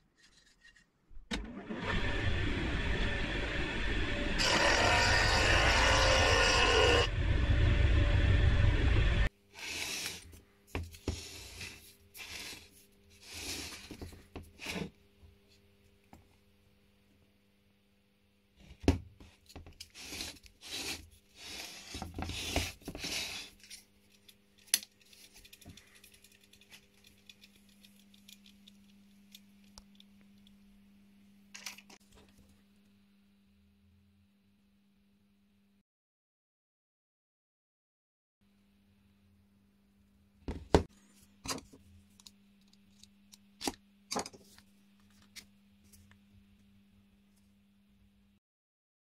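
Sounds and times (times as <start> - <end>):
handling scraping and rustling: 0.0 - 1.2, 9.5 - 15.7, 18.6 - 30.5
faint steady hum: 5.9 - 35.8.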